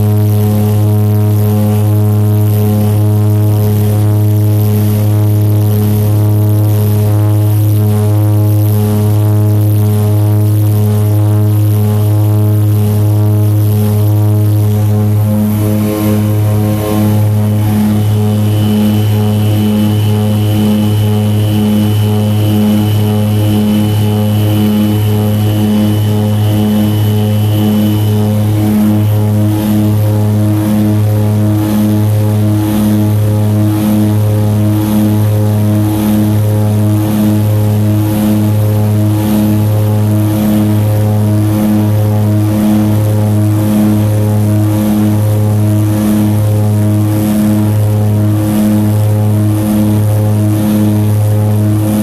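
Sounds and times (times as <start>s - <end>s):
propeller engines droning: 0.0s - 52.0s
thin high whine: 13.5s - 34.3s.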